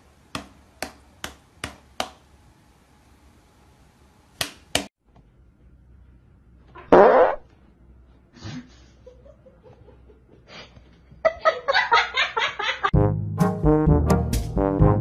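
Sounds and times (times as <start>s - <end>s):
person farting: 6.8s - 7.5s
brass music: 13.0s - 15.0s.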